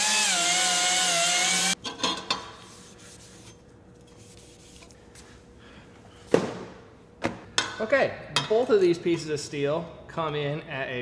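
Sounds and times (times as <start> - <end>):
power tool whining on steel: 0.0 - 1.8
faint hum: 1.8 - 11.0.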